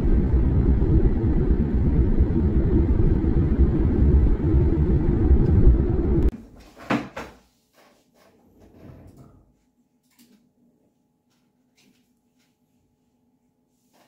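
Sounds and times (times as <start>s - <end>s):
car road and engine rumble: 0.0s - 6.3s.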